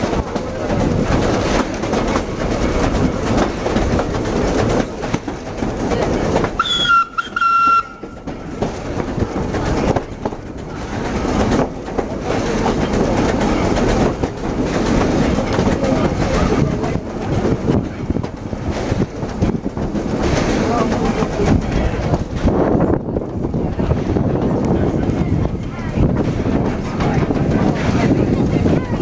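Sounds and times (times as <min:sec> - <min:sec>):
train running rumble: 0:00.0 - 0:29.0
wheels clacking over rail joints: 0:00.0 - 0:29.0
steam whistle toots: 0:06.6 - 0:08.0.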